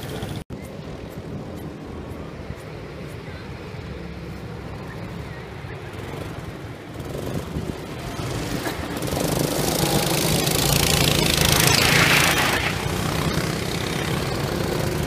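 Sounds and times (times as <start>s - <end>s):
go-kart engines running: 0.0s - 15.0s
rushing hiss of passing karts: 3.2s - 15.0s.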